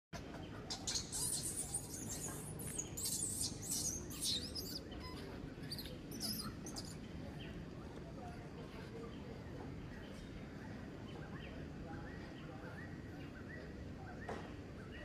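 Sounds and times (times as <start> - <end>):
baby monkey crying squeals: 0.8 - 6.9.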